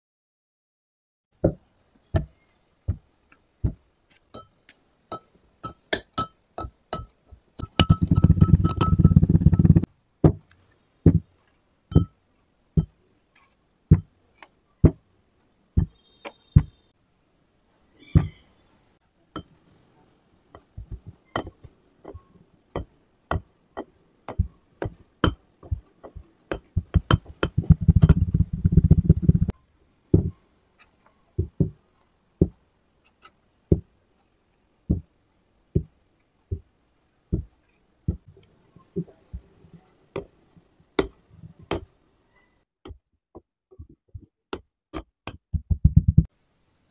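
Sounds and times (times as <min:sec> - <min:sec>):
sand tamper knocking on glass: 0:07.6 - 0:10.4.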